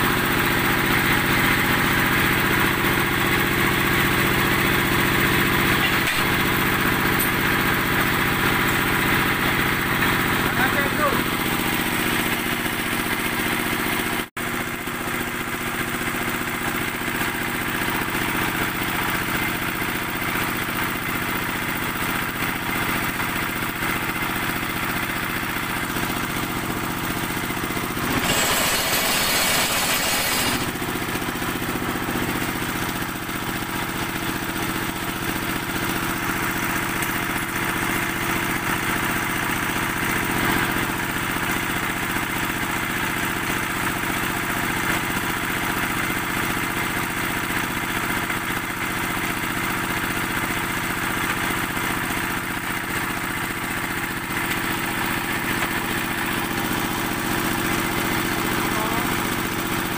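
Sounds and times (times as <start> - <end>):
diesel engine running: 0.0 - 42.6, 49.3 - 59.9
harsh noisy burst: 28.0 - 30.8.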